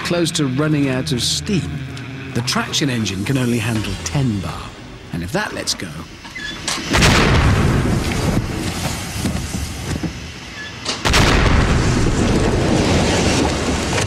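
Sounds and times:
heavy explosion booms: 6.9 - 9.8, 11.0 - 14.0
rush of escaping steam: 7.6 - 10.7.

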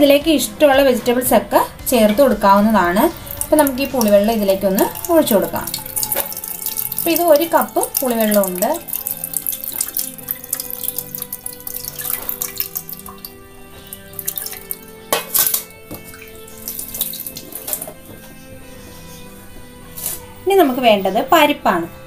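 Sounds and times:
water dripping: 1.9 - 18.2
liquid splashing into a pot: 3.1 - 18.0.

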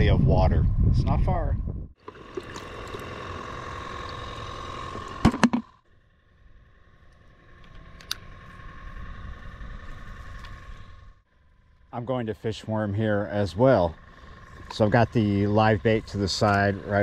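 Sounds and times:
aerator pump humming: 1.9 - 17.0
click: 7.6 - 8.2.

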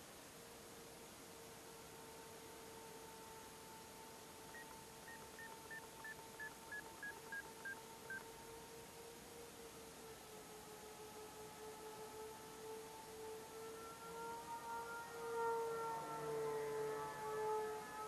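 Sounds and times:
faint steady hum: 0.0 - 18.0
descending electronic beeps: 4.5 - 8.2.

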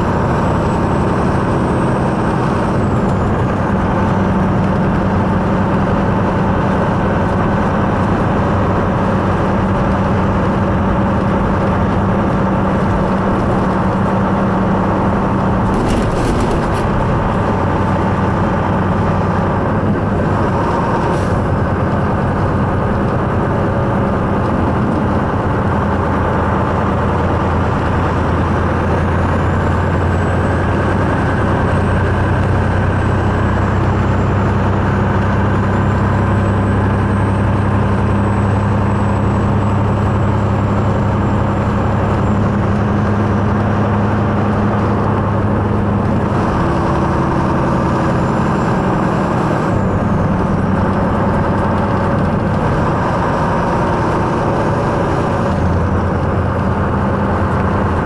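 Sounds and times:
truck diesel engine running: 0.0 - 58.0
tyre and road noise: 0.0 - 58.0
brief rattle: 15.6 - 18.8.

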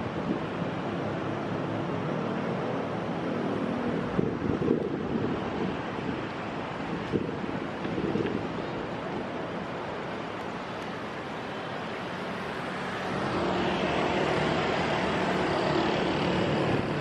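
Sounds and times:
city street traffic: 0.0 - 17.0
motorcycles riding past: 11.6 - 17.0.

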